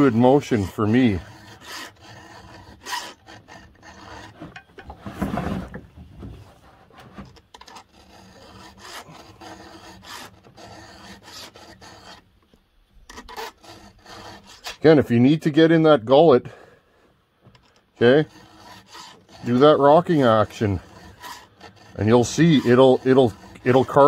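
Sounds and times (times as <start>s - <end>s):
file rasping on saw chain: 0.0s - 5.0s, 7.4s - 12.4s, 13.1s - 15.1s, 17.7s - 24.0s.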